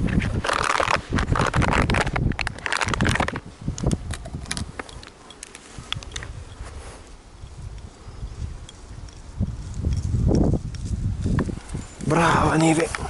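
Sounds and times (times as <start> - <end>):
footsteps rustling through vegetation: 4.6 - 13.0.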